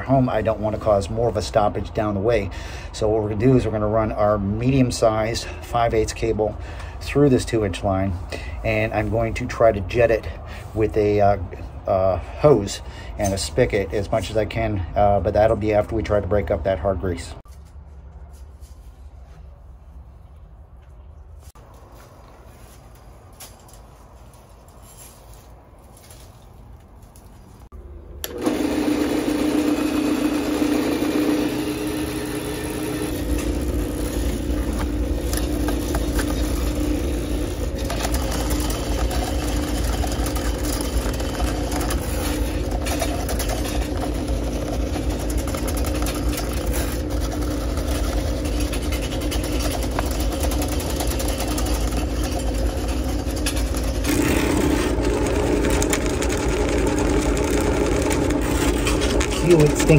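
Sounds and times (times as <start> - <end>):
drain cleaning machine motor: 28.2 - 59.9.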